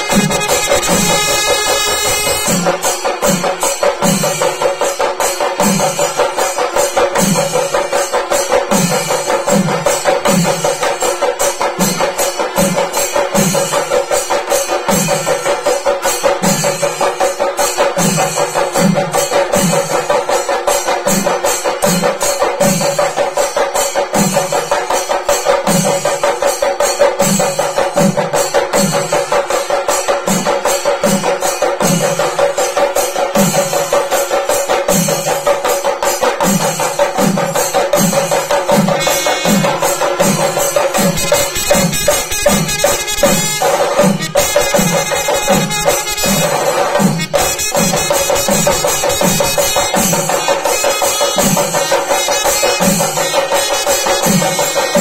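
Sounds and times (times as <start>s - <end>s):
deep drum beat: 0.0s - 3.4s
fast stick strokes on drums: 0.0s - 55.0s.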